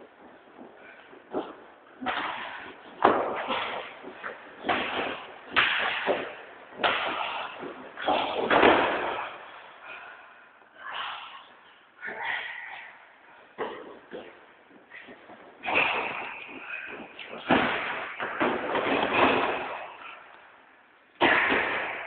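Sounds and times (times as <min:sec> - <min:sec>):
bodies slamming onto mat: 0:15.6 - 0:20.1.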